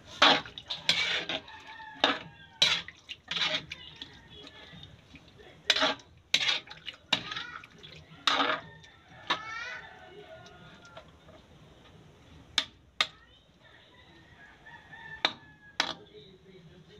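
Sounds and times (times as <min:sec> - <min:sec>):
metal spatula scraping wok: 0:00.0 - 0:09.8.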